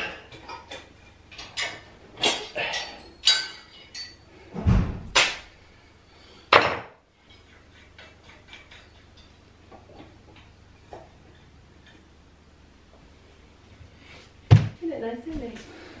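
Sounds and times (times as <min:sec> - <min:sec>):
metal chandelier clinking: 0:00.3 - 0:04.4
heavy low thump: 0:04.6 - 0:05.2.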